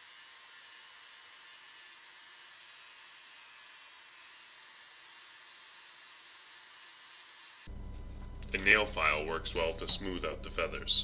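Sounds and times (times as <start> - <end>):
rotary tool grinding wood: 0.0 - 7.7.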